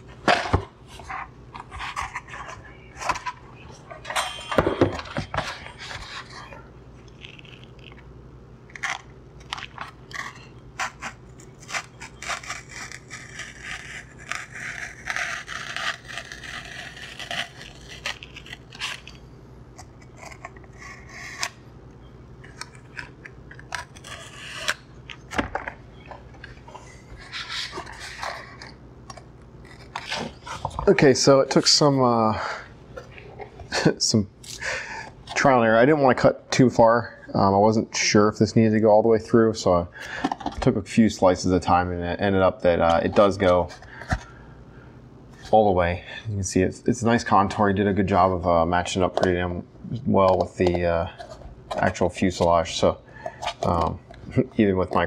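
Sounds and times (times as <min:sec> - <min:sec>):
knife slicing foam: 0:10.2 - 0:19.1.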